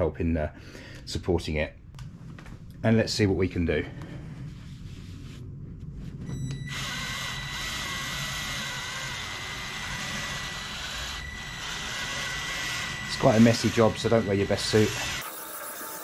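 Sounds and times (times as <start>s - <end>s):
rotary polisher whining: 6.3s - 16.0s.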